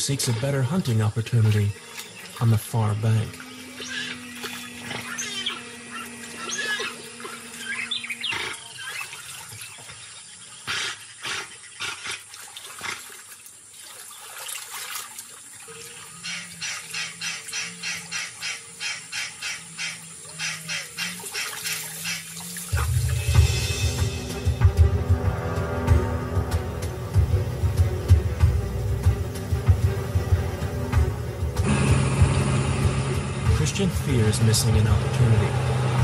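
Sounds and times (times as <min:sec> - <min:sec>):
birds chirping: 0:00.0 - 0:12.1, 0:15.6 - 0:24.6
water sloshing and splashing: 0:00.0 - 0:31.7
soft rhythmic beat: 0:22.8 - 0:34.8.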